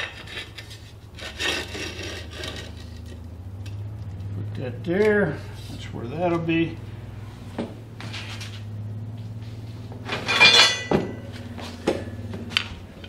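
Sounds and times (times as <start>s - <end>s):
low electric hum: 0.0s - 13.0s
steel pieces clinking: 10.1s - 11.3s.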